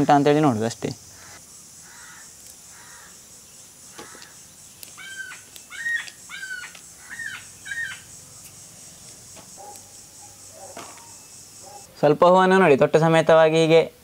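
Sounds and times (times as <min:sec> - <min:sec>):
steady high hiss: 0:00.0 - 0:14.0
bird calling ringing notes: 0:01.1 - 0:11.9.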